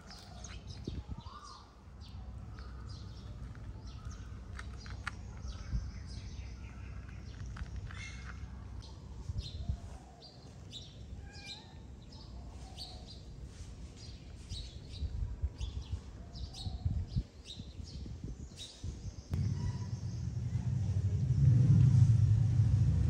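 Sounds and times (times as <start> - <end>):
small birds chirping: 0.0 - 21.4
low rumbling noise: 19.3 - 23.0.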